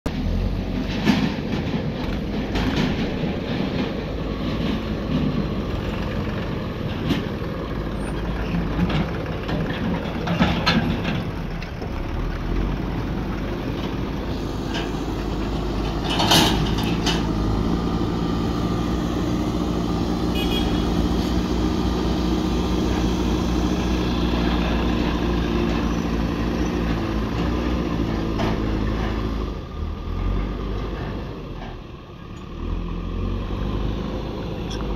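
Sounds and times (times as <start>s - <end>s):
trailer knocking and rattling: 0.1s - 32.2s
tractor diesel engine running: 0.1s - 34.9s
loud metal clank: 14.3s - 17.6s.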